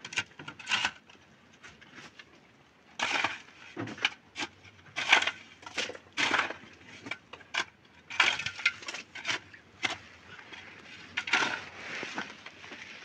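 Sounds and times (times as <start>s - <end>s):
shovel scraping stony dirt: 3.0s - 13.0s.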